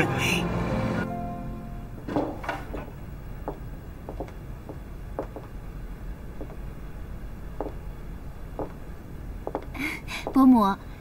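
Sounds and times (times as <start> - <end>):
faint room hum: 0.0 - 11.0
heeled footsteps on hard floor: 2.0 - 5.5, 6.4 - 6.7, 7.6 - 7.8, 8.6 - 8.8, 9.4 - 10.4.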